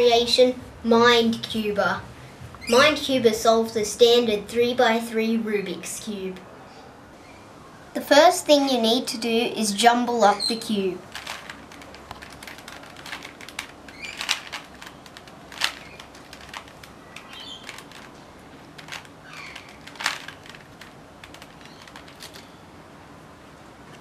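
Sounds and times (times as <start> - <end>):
puzzle cube plastic clicking: 11.1 - 22.5.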